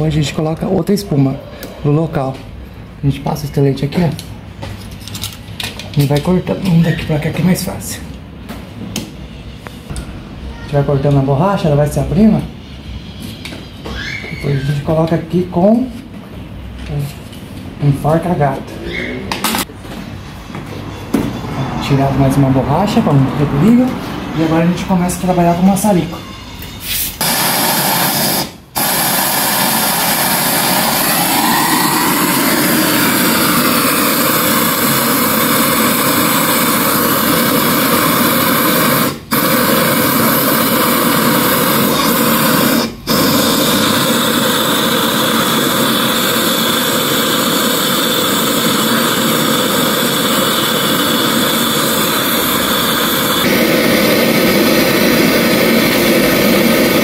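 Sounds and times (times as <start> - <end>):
gas torch flame rushing: 26.8 - 57.0.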